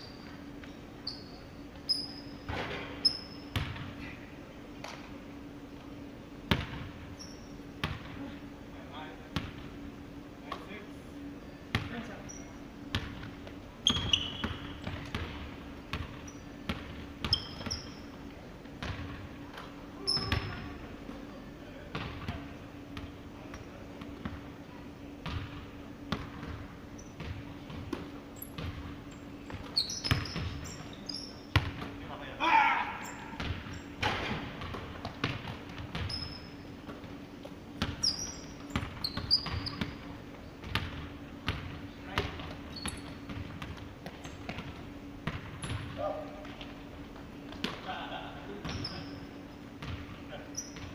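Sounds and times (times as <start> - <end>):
sneaker squeaks: 0.0 - 4.2, 7.0 - 8.3, 11.3 - 19.2, 20.0 - 20.8, 25.2 - 32.0, 32.9 - 41.2, 42.0 - 47.8, 48.6 - 50.9
basketball bouncing on hardwood: 3.5 - 3.8, 7.8 - 8.1, 29.5 - 30.6, 33.4 - 36.2, 37.8 - 40.0, 40.6 - 46.7, 49.8 - 50.1.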